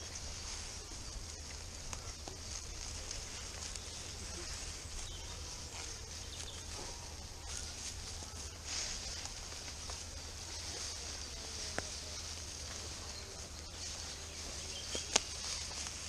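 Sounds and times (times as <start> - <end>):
footsteps in dry leaves: 0.0 - 16.0.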